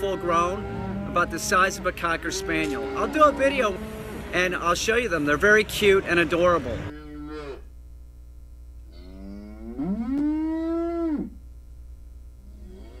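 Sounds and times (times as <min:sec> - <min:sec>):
cow mooing: 0:00.0 - 0:04.4, 0:06.8 - 0:07.7, 0:08.9 - 0:11.4, 0:12.4 - 0:13.0.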